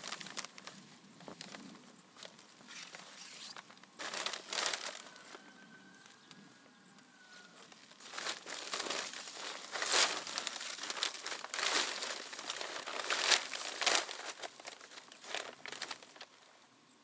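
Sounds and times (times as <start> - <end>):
snow crunching and rustling: 7.9 - 16.1.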